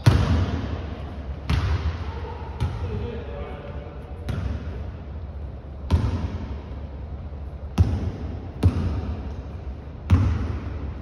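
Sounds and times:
basketball bouncing on hardwood floor: 7.8s - 9.2s, 10.1s - 10.7s.

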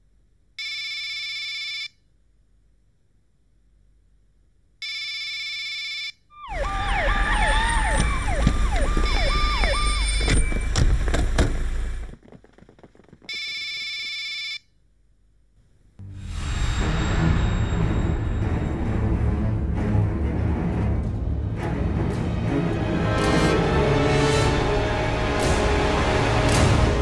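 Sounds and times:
police sirens wailing: 6.4s - 10.4s.

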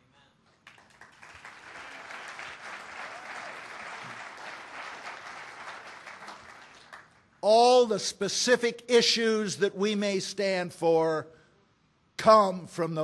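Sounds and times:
audience applauding: 0.6s - 7.2s.

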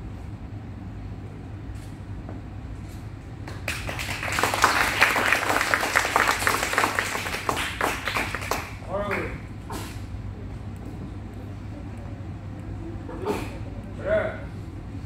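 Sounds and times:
low steady hum: 0.0s - 15.0s
people applauding: 3.5s - 9.4s.

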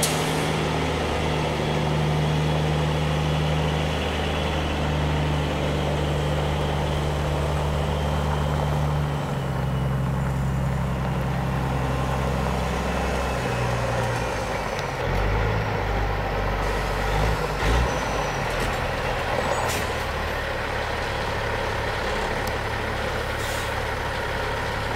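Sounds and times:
truck diesel engine running: 0.0s - 24.9s
short air hisses: 23.4s - 23.8s.

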